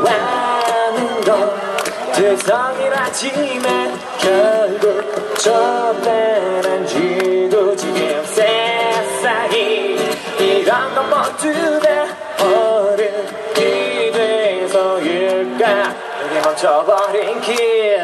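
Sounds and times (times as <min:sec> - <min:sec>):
live pop-rock band: 0:00.0 - 0:18.0
strummed acoustic guitar: 0:00.0 - 0:18.0.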